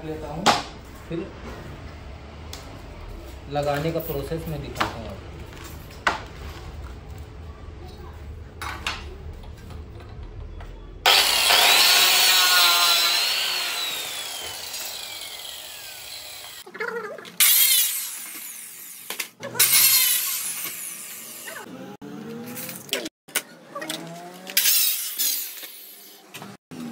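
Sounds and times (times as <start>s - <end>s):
cutter motor whining: 11.0s - 16.6s.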